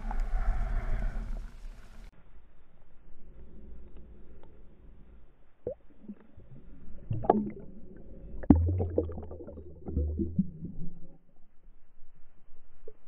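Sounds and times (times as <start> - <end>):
low rumble: 6.4 - 13.0.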